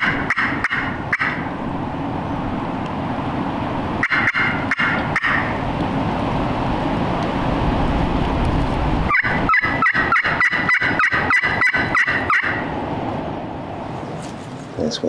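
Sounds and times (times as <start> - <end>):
turkey call yelping: 0.0 - 1.6, 4.0 - 5.6, 9.1 - 12.7
wind rumbling on microphone: 0.0 - 14.8.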